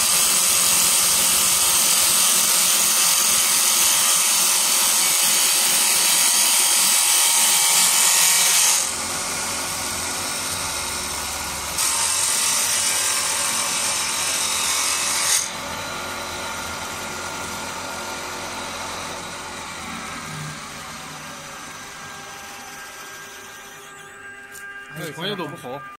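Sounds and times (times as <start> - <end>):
lathe cutter rasping wood: 0.0 - 26.0
lathe machine running: 15.8 - 26.0.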